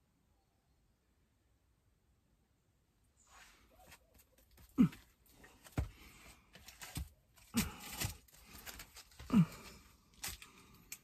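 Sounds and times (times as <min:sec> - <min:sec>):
footsteps on rocky floor: 0:04.6 - 0:10.4
person grunting: 0:04.8 - 0:05.0, 0:09.2 - 0:09.8.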